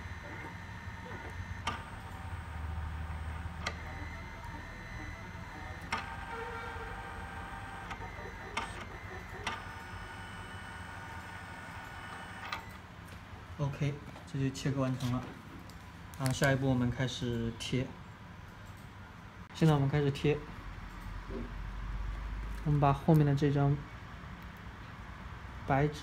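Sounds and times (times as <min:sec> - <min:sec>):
cutting plotter motors whining: 0:00.0 - 0:12.8.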